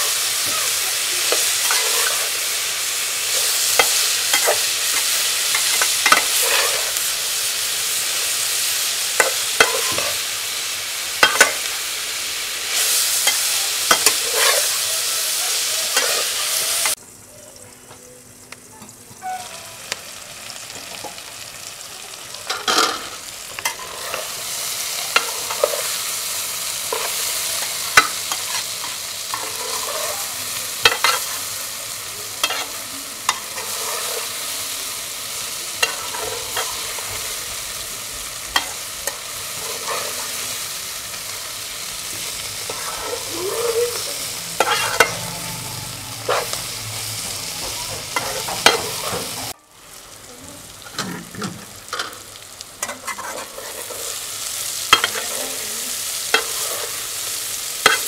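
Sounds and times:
vegetables sizzling in oil: 0:00.0 - 0:58.0
metal spatula scraping a pan: 0:01.2 - 0:07.1, 0:09.2 - 0:10.2, 0:12.7 - 0:17.0, 0:22.5 - 0:26.1, 0:26.8 - 0:31.7, 0:32.4 - 0:34.7, 0:35.7 - 0:37.4, 0:38.5 - 0:40.7, 0:42.0 - 0:49.6, 0:52.8 - 0:54.2, 0:54.9 - 0:55.7, 0:56.3 - 0:57.0, 0:57.6 - 0:58.0.

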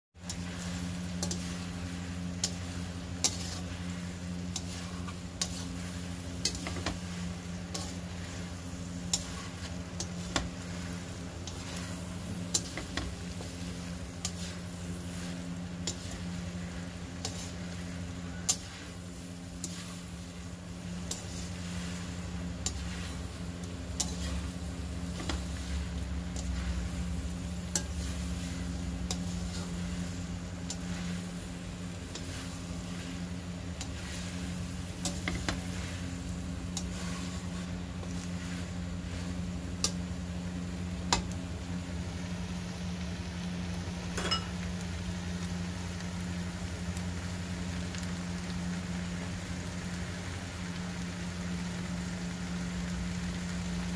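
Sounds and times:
utensil scraping a wok: 0:00.2 - 0:41.4
light sizzle: 0:00.2 - 0:53.9
steady low hum: 0:00.2 - 0:53.9.

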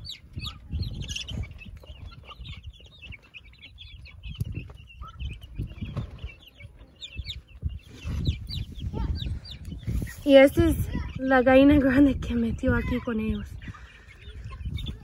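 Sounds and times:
chicks peeping: 0:00.0 - 0:15.0
hens clucking: 0:00.0 - 0:15.0.

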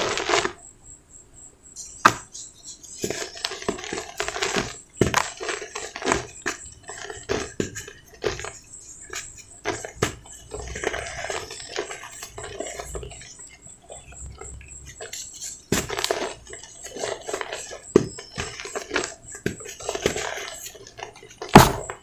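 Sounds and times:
cement powder crunching and sifting: 0:03.0 - 0:22.0
hard lumps cracking: 0:03.0 - 0:22.0.

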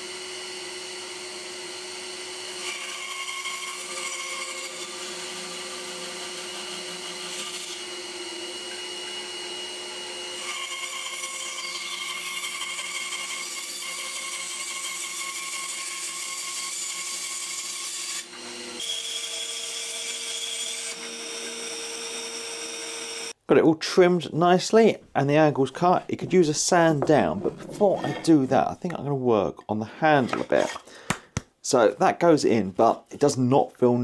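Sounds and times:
bandsaw cutting wood: 0:00.0 - 0:23.4.

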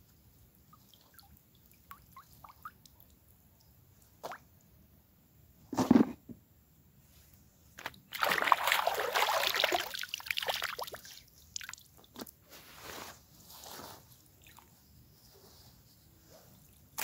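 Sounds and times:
water splashing and trickling: 0:00.4 - 0:04.7, 0:07.8 - 0:12.4.

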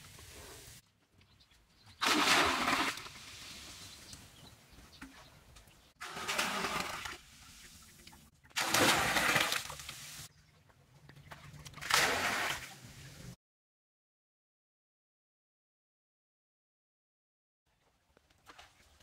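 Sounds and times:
water splashing into pool: 0:02.0 - 0:03.8, 0:06.0 - 0:10.3, 0:11.3 - 0:12.9.

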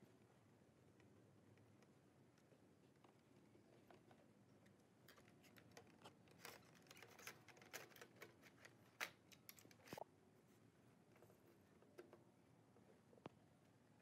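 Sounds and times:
clicks and knocks of handled parts: 0:05.0 - 0:10.0.

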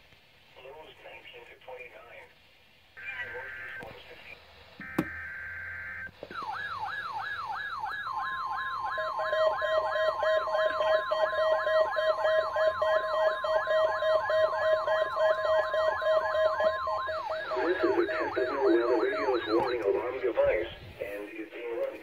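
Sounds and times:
falling siren sweeps: 0:04.8 - 0:20.7
steady high alarm tone: 0:04.8 - 0:20.8
steady lower alarm tone: 0:04.8 - 0:20.8.

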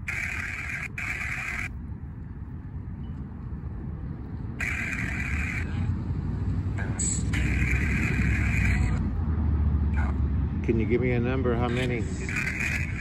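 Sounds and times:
choppy static bursts: 0:00.0 - 0:01.8, 0:04.6 - 0:05.8, 0:07.0 - 0:09.0, 0:11.7 - 0:13.0.

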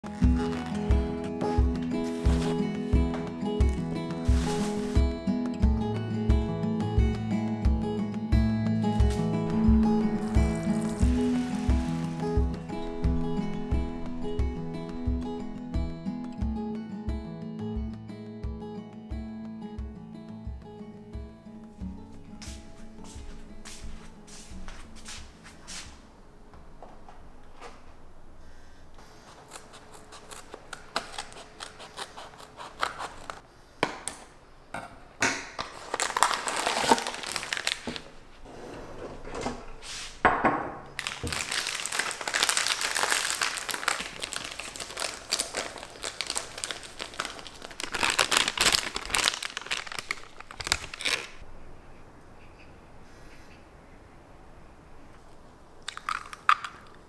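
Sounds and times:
plastic bag crinkling: 0:03.7 - 0:05.1, 0:09.1 - 0:12.7, 0:35.7 - 0:38.2, 0:41.0 - 0:51.4.

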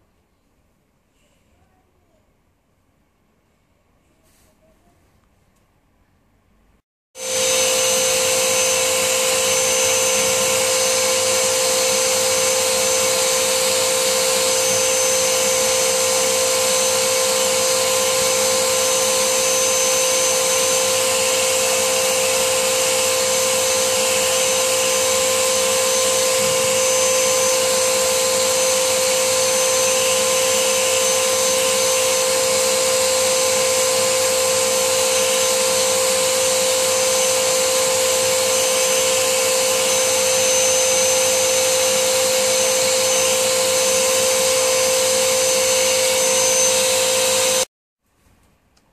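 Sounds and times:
vacuum cleaner running: 0:07.2 - 0:47.7.

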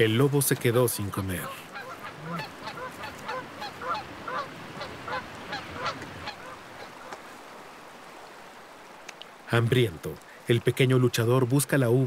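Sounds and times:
geese honking: 0:01.4 - 0:07.2.

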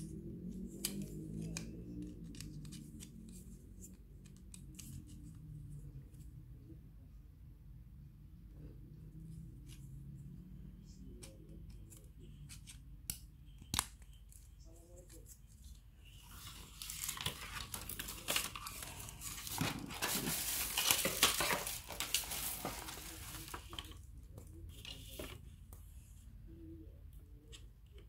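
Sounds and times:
plastic panel rustling and scraping: 0:17.2 - 0:23.9.

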